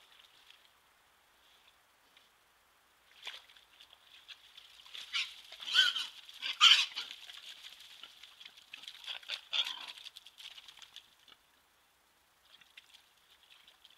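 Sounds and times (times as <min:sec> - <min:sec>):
wild boars squealing: 0:05.1 - 0:07.2.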